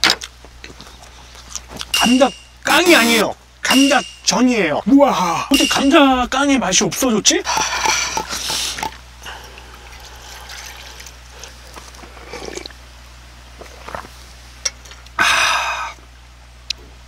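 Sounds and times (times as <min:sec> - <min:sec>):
liquid pouring into metal bowl: 0:07.8 - 0:11.6
person exhaling loudly: 0:15.2 - 0:16.0.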